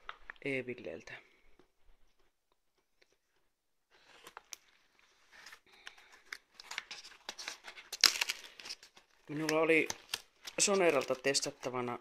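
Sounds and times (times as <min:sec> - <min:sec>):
envelope crinkling: 0:03.9 - 0:11.8.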